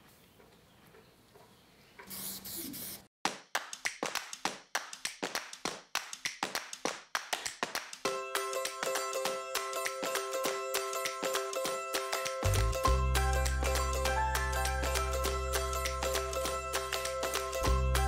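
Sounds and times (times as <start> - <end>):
spray paint can hissing: 2.1 - 3.1
rhythmic handclaps: 3.3 - 18.0
guitar music: 8.1 - 18.0.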